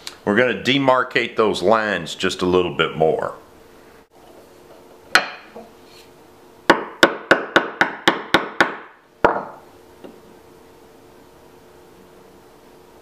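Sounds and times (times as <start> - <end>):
chisel struck into wood: 5.1 - 5.5, 6.7 - 9.6.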